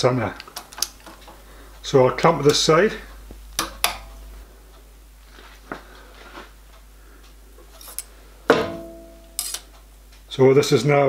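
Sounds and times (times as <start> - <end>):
loud metal clank with ringing: 8.5 - 9.5
metallic clicks of pliers: 9.4 - 9.8.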